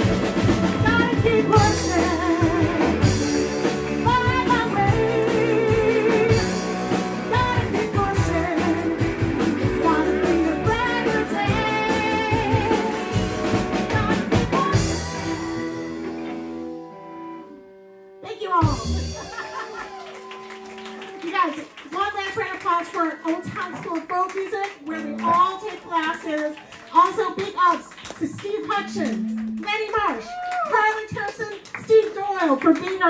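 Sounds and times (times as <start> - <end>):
drum kit: 0.0 - 16.7, 18.5 - 20.6
electric guitars: 0.0 - 21.2, 24.7 - 26.0, 28.7 - 29.7
woman singing with vibrato: 0.8 - 3.0, 3.9 - 6.6, 7.2 - 9.0, 9.6 - 13.0, 13.8 - 15.6.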